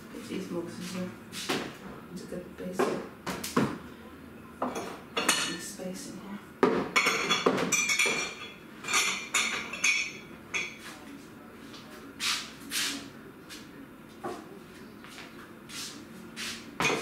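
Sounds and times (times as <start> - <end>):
dishes and cutlery clattering: 4.6 - 5.7, 6.6 - 11.0, 16.8 - 17.0.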